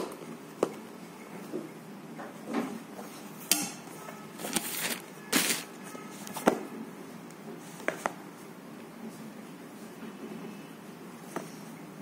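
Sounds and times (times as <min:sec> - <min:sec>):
rustling scrapes: 0:04.4 - 0:05.8.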